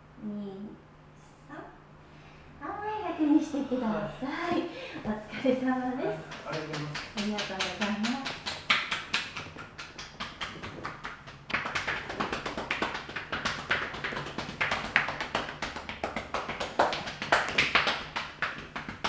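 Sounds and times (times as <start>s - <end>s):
hands tapping on a body: 6.2s - 19.0s.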